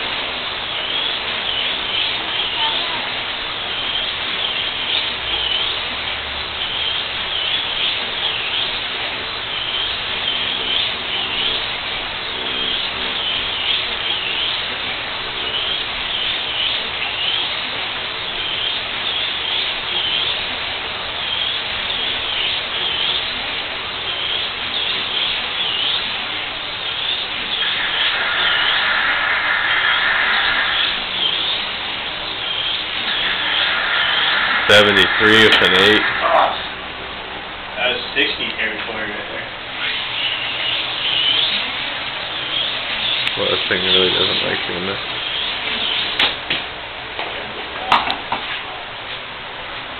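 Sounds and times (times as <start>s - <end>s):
steady high tone: 18.2s - 39.3s
slot car electric motor whining: 24.0s - 37.2s.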